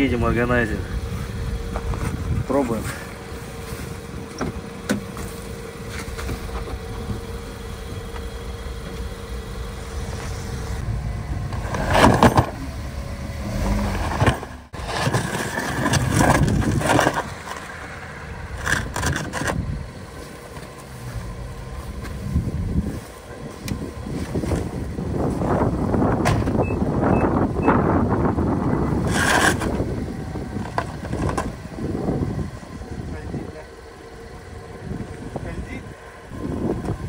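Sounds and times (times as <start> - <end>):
van engine running: 0.0 - 37.0
tyre crunching and scraping on ice: 13.5 - 17.8.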